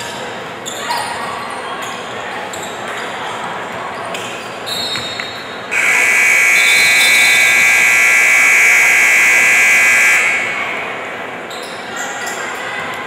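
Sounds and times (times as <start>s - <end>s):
scoreboard buzzer blast: 5.7s - 10.8s.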